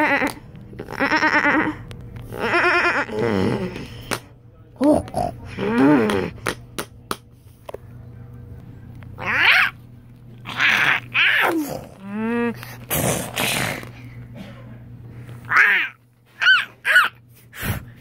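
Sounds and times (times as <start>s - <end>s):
person making creature growls: 0.0s - 4.0s, 4.8s - 6.4s, 10.5s - 13.9s
breathy hissing roar: 10.5s - 13.9s.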